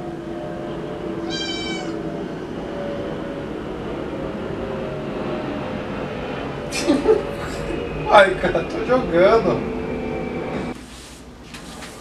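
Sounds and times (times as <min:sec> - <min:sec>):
steady background drone: 0:00.0 - 0:10.8
kitten meowing: 0:01.2 - 0:02.0.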